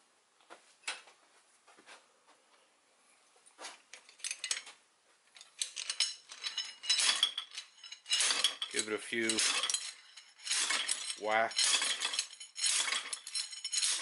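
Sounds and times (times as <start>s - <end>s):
metal slide hammer clinking: 5.4s - 14.0s.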